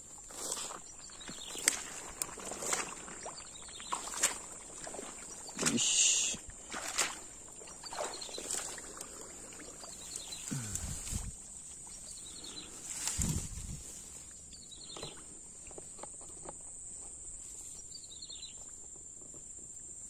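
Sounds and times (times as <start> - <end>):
grass brushing against legs: 0.0 - 14.6
footsteps through wet grass and mud: 0.0 - 16.2.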